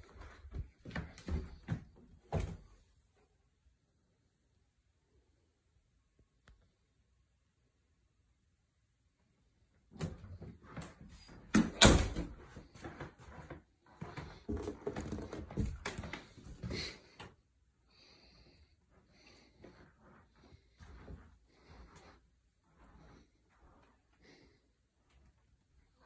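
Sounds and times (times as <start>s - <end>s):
door clicks and knocks: 11.5s - 12.3s.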